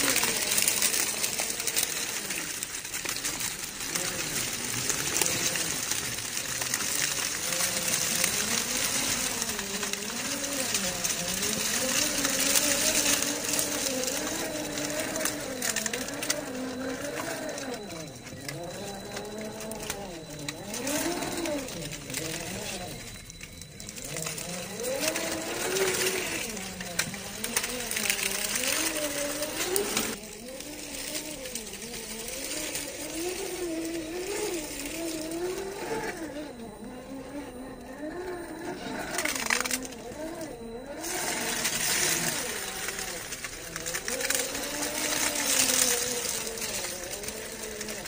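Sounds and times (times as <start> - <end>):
dry leaves crackling under tyres: 0.0 - 48.0
electric motor and gears whining: 0.0 - 48.0.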